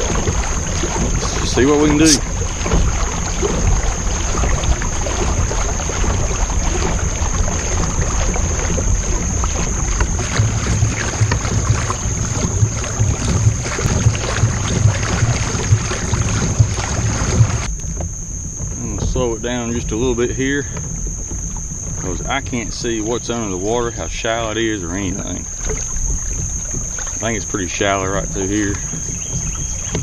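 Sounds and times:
water splashing along kayak hull: 0.0s - 30.0s
wind rumble on microphone: 0.0s - 30.0s
thin steady high tone: 1.2s - 2.4s, 18.4s - 30.0s.

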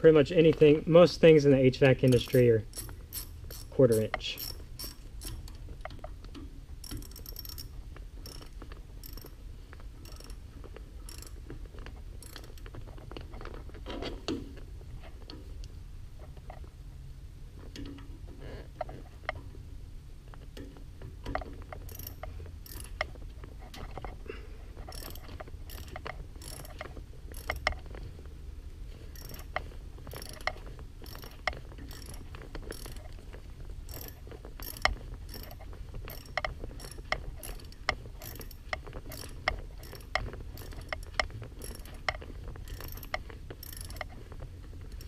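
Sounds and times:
low steady hum: 0.0s - 45.0s
hand ratchet clicking: 2.0s - 5.6s, 6.8s - 9.4s, 10.0s - 10.4s, 11.1s - 11.4s, 12.2s - 12.7s, 21.2s - 23.1s, 24.8s - 27.9s, 29.1s - 33.2s, 33.9s - 44.2s.

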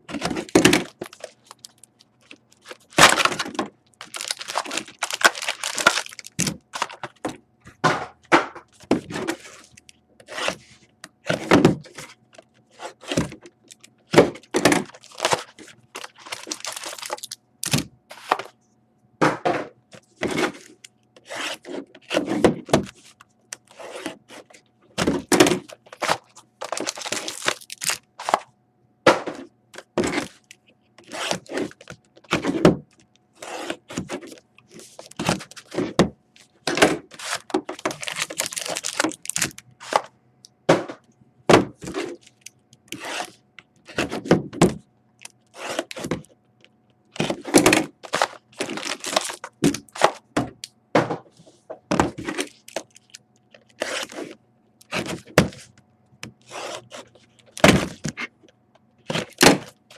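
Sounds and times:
shrink wrap crinkling and tearing: 0.3s - 7.1s, 14.8s - 18.3s, 25.6s - 28.4s, 37.1s - 39.9s, 48.0s - 50.0s, 52.3s - 54.2s.

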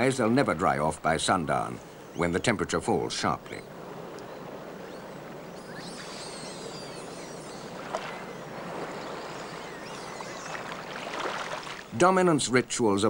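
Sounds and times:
twittering bird chirps: 1.5s - 12.0s
running water rushing: 3.0s - 12.3s.

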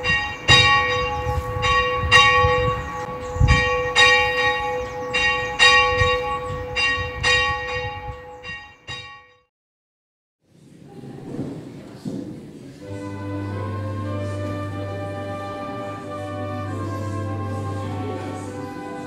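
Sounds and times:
church bell ringing: 0.0s - 9.5s, 12.8s - 19.0s.

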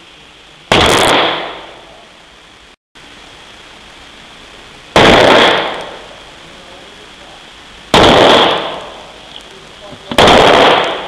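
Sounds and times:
gunshot echoing indoors: 10.1s - 11.0s.

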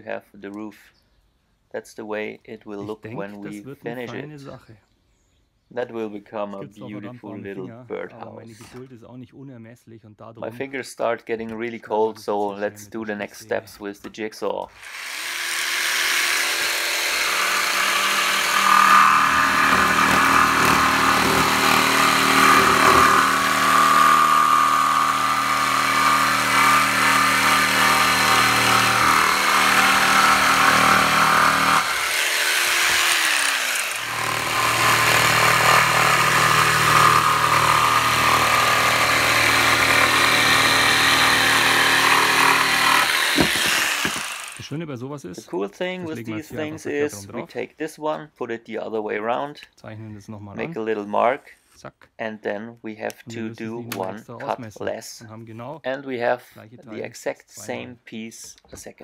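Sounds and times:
electric jigsaw cutting wood: 14.7s - 44.7s.

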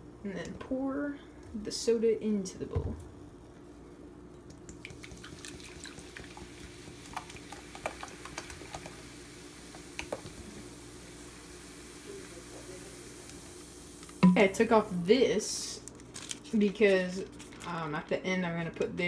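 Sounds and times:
soda pouring and fizzing: 4.6s - 15.0s.

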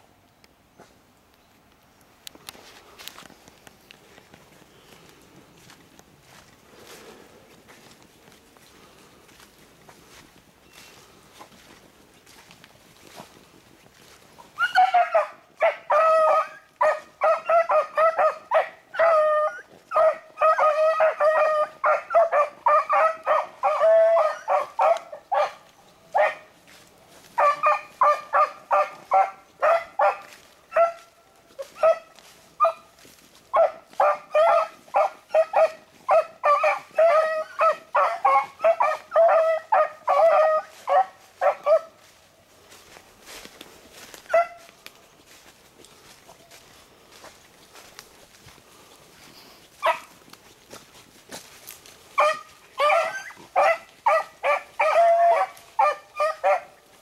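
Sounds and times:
dogs baying and barking: 14.4s - 42.2s, 43.9s - 44.7s, 49.7s - 50.3s, 51.4s - 57.0s.

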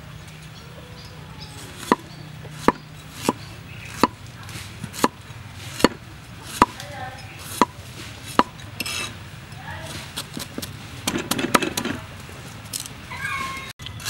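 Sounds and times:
cleaver knocking on wooden board: 1.8s - 4.2s, 7.5s - 8.6s.

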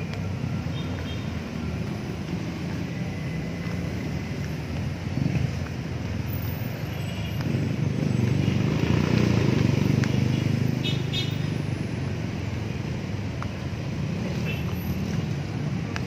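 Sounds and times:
road traffic rumble: 0.0s - 16.0s
vehicle passing: 7.4s - 15.9s.

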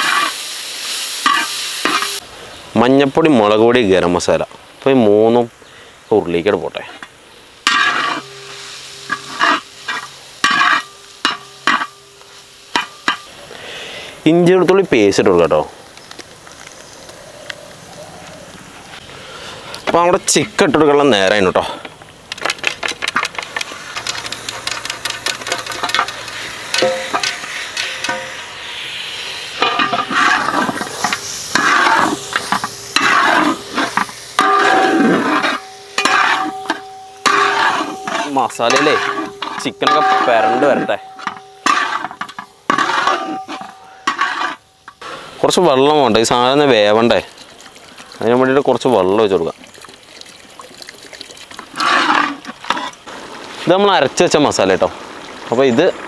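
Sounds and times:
metal spatula scraping a pan: 0.0s - 0.4s, 1.2s - 2.2s, 6.9s - 13.3s, 22.9s - 28.7s, 29.6s - 45.2s, 51.7s - 53.0s
food frying in oil: 0.0s - 2.7s, 6.4s - 14.4s, 22.2s - 56.0s.

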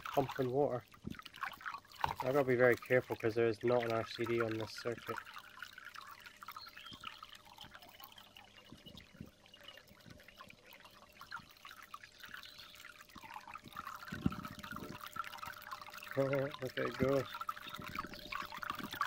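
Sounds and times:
faint steady hum: 0.0s - 19.0s
water splashing and gurgling: 0.0s - 19.0s.

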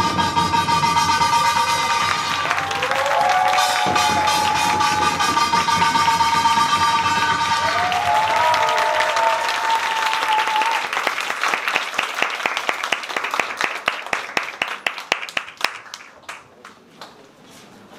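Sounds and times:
audience applauding: 1.4s - 17.2s
person cheering: 2.2s - 5.5s, 7.2s - 11.1s.

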